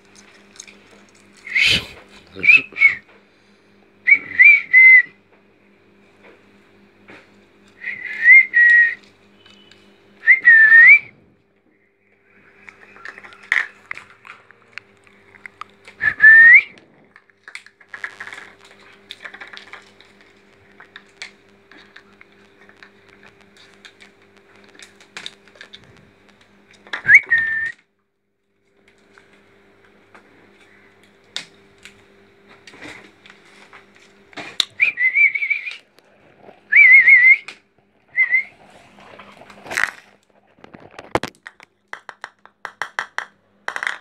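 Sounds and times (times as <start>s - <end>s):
loud rising whistles: 7.8s - 11.2s, 16.0s - 16.8s, 34.8s - 35.8s, 36.7s - 37.5s, 38.2s - 38.5s.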